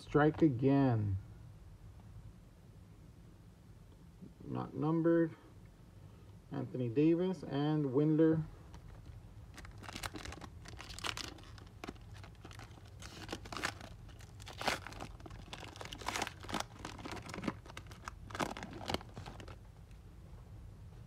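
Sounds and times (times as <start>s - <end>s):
wrapper tearing and crinkling: 8.8s - 19.7s.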